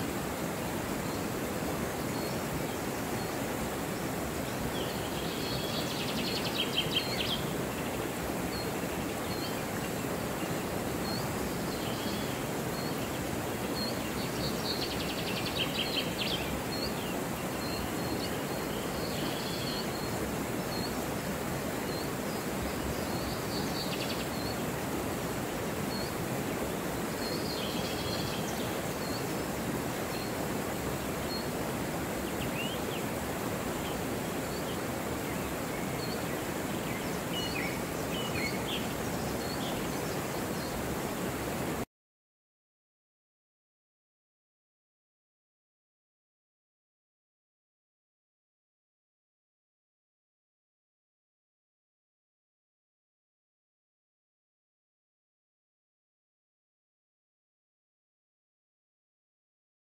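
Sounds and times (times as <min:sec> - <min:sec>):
river rushing over rocks: 0:00.0 - 0:41.8
birds trilling songs: 0:00.4 - 0:41.1.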